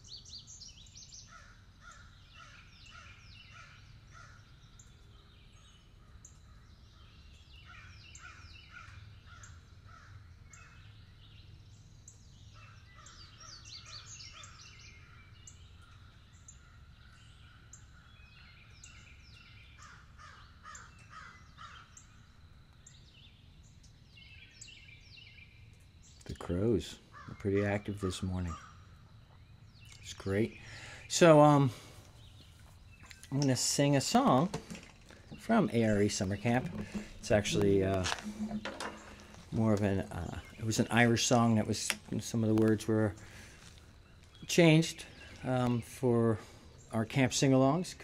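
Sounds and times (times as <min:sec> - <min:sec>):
crows cawing: 0:01.3 - 0:04.5, 0:07.7 - 0:10.7, 0:19.8 - 0:21.9, 0:27.1 - 0:27.7, 0:28.5 - 0:29.0.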